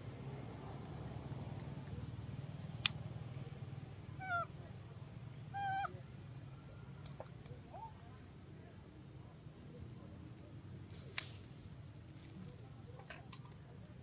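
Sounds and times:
young monkey calling: 4.2 - 4.5, 5.5 - 6.0.

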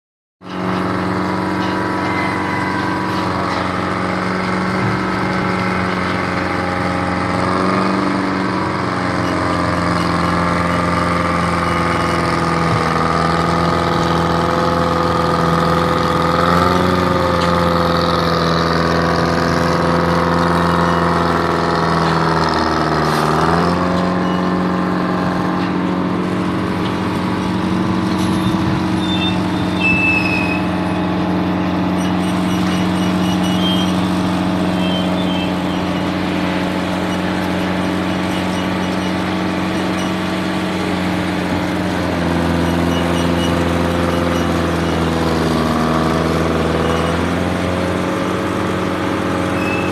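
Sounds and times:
crane engine running: 0.4 - 49.9.

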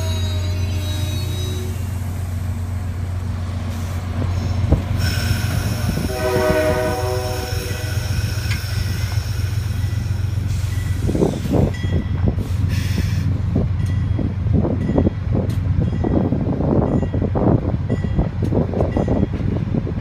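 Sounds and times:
passenger train cars rumbling: 0.0 - 20.0
locomotive air horn: 5.0 - 8.2.

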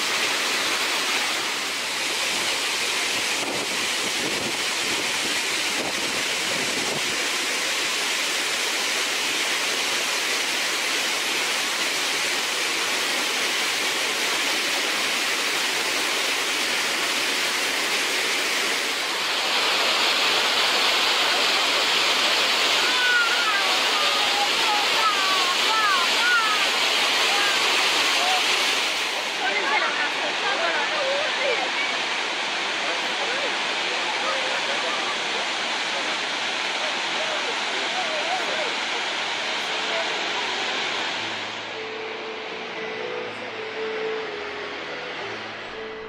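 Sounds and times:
waterfall roaring: 0.0 - 46.0.

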